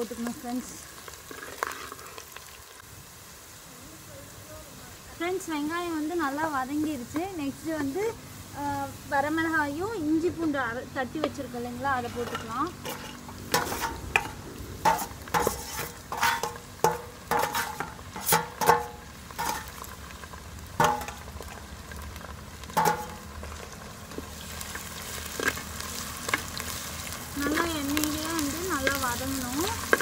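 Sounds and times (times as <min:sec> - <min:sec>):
food sizzling in hot oil: 0:00.0 - 0:30.0
spoon stirring and scraping pot: 0:12.0 - 0:19.9, 0:22.8 - 0:23.2, 0:27.4 - 0:30.0.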